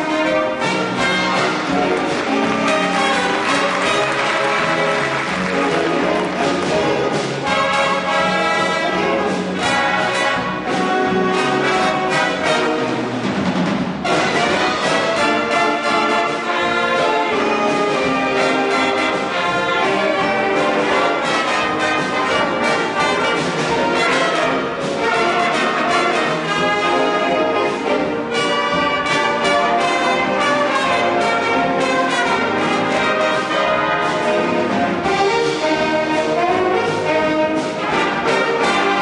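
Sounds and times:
big band playing live: 0:00.0 - 0:39.0.

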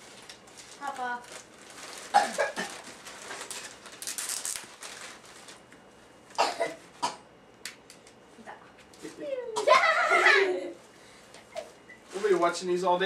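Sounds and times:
wrapping paper rustling and tearing: 0:00.0 - 0:05.7, 0:12.1 - 0:12.6.

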